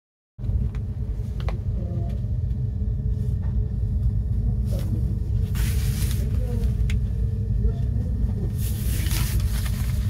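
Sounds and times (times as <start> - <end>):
low background rumble: 0.4 - 10.0
plastic wrap rustling: 8.6 - 10.0.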